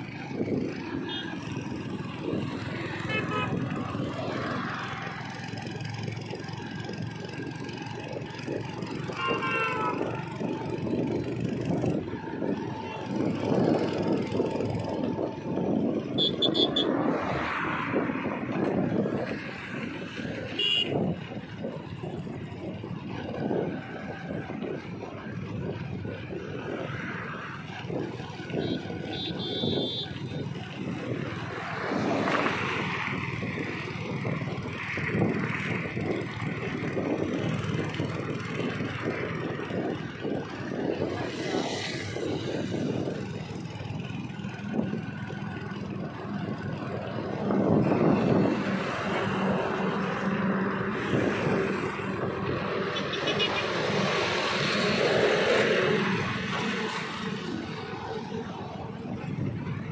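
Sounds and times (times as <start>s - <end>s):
motorcycle engines humming: 0.0s - 59.9s
road noise: 0.0s - 59.9s
wind buffeting microphone: 0.0s - 59.9s.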